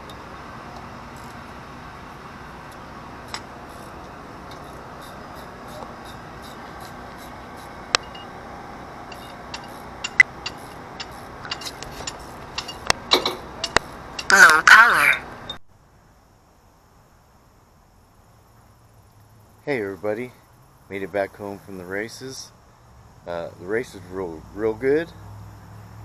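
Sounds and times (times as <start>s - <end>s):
steady background hiss: 0.0s - 26.0s
metallic clicks of hand tools: 9.1s - 14.4s.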